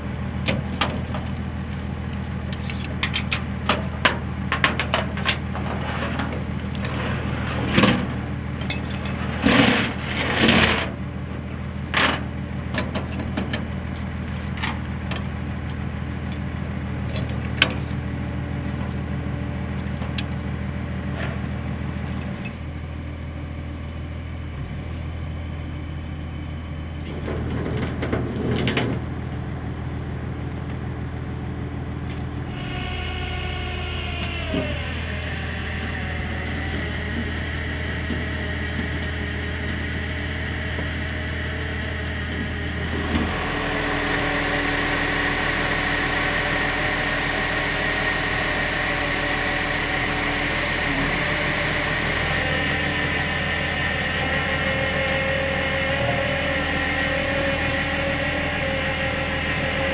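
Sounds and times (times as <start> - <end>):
tow truck engine running: 0.0 - 59.9
metal clanks and clicks: 7.7 - 10.9.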